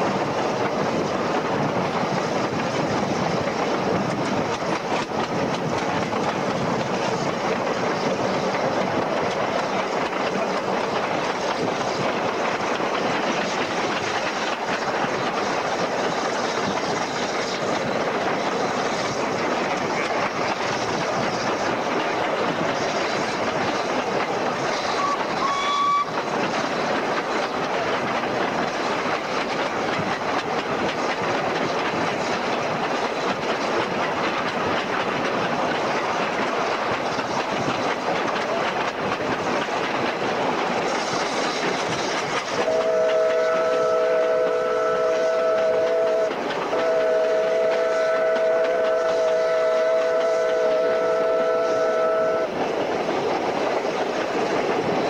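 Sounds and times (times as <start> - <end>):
train carriages running on track: 0.0 - 55.0
steam whistle chord: 42.6 - 52.5.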